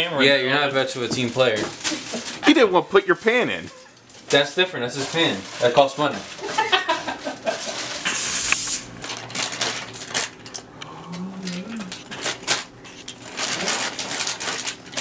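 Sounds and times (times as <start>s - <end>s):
plastic bag and foil crinkling: 1.2s - 10.7s, 11.5s - 15.0s
fries clattering onto foil: 3.2s - 10.5s, 11.9s - 15.0s.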